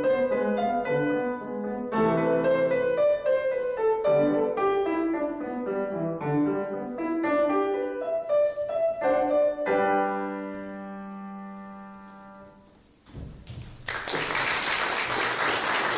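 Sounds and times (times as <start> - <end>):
grand piano playing: 0.0 - 14.0
soft knock: 13.1 - 13.8.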